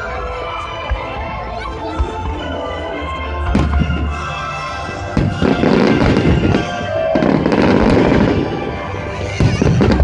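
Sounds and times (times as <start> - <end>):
music: 0.0 - 10.0
fireworks bursting and crackling: 3.4 - 10.0.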